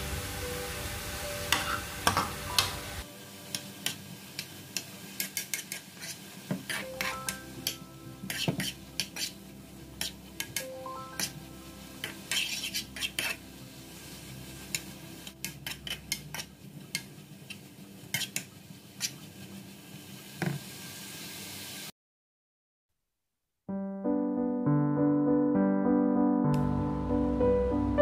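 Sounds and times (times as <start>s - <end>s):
metal spoon scraping a pan: 1.5s - 2.3s, 3.5s - 9.4s, 10.0s - 11.4s, 12.0s - 13.4s, 14.7s - 17.1s, 18.1s - 19.2s.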